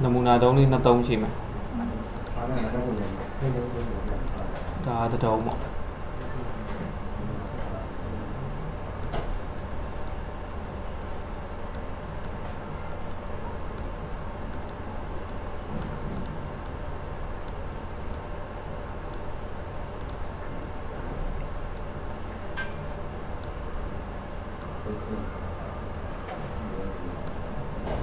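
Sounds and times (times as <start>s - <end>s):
low hum: 0.0s - 28.0s
computer mouse clicking: 2.2s - 2.4s, 5.3s - 5.7s, 14.5s - 16.8s, 20.0s - 20.2s, 27.2s - 27.4s.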